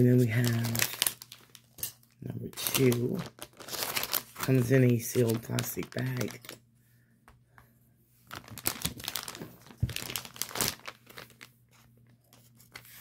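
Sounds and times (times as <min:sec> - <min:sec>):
plastic bag crinkling: 0:00.0 - 0:06.6, 0:08.3 - 0:11.6.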